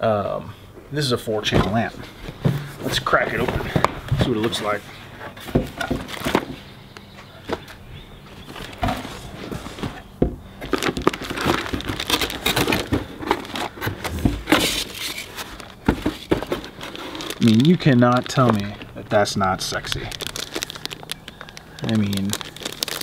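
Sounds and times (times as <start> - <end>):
plastic packaging rustling: 1.4 - 6.6, 8.4 - 23.0
cardboard flaps scraping and knocking: 1.5 - 6.6, 8.5 - 17.6.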